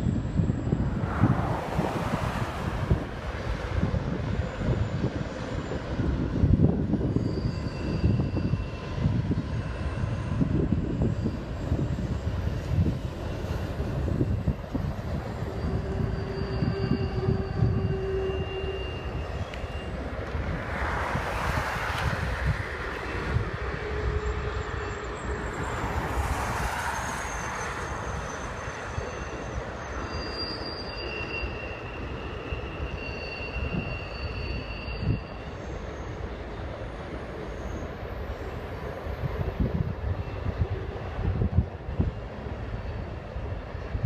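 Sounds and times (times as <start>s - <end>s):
freight train cars rumbling: 0.0s - 44.0s
high-pitched wheel squeals: 4.3s - 20.4s, 22.9s - 38.7s.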